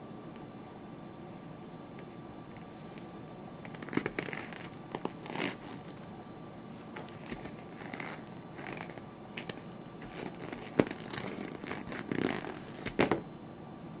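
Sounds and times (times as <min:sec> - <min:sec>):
rubber scrunching: 0:03.6 - 0:06.0, 0:06.9 - 0:13.2
rubber rubbing and scraping: 0:03.7 - 0:06.0, 0:06.9 - 0:13.2.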